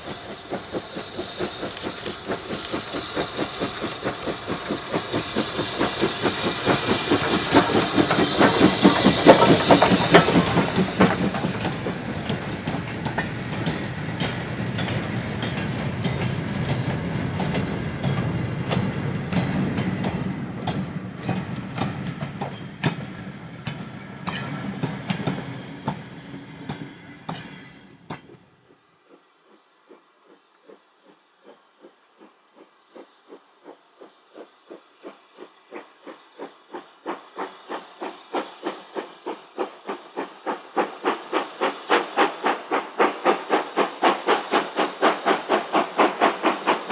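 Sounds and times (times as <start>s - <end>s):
wagon wheels clicking on rail joints: 0.0s - 23.0s
steam locomotive exhaust beats: 0.0s - 46.9s.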